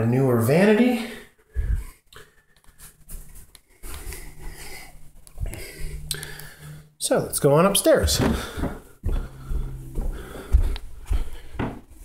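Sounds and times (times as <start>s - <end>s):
faint steady hum: 1.0s - 12.0s
footsteps: 2.6s - 6.7s, 7.7s - 12.0s.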